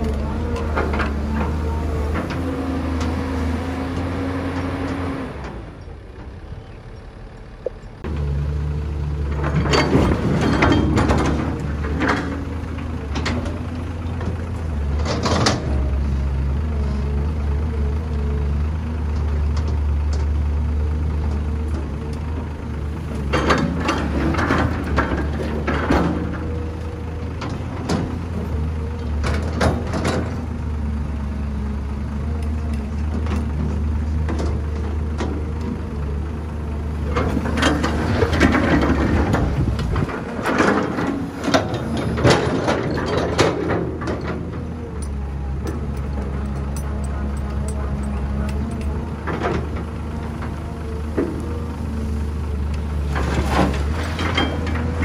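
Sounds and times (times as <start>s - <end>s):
excavator diesel engine running: 0.0s - 55.0s
soil and rocks dropping into truck bed: 53.1s - 55.0s.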